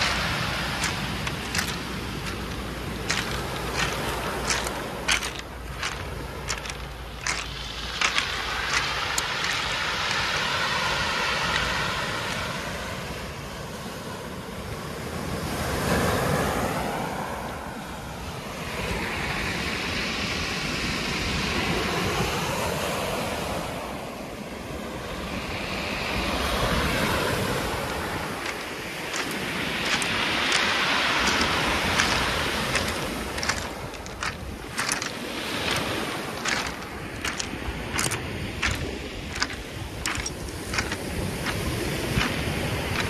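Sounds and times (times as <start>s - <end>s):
pebble clicks: 0.0s - 10.5s, 28.2s - 43.0s
surf washing over pebbles: 0.0s - 43.0s
wind rumble on microphone: 0.0s - 43.0s.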